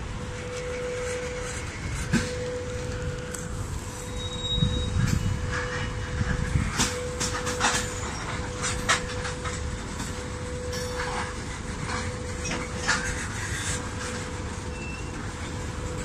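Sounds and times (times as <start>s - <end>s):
freight train rumbling: 0.0s - 16.0s
wheels and couplings clanking: 0.0s - 16.0s.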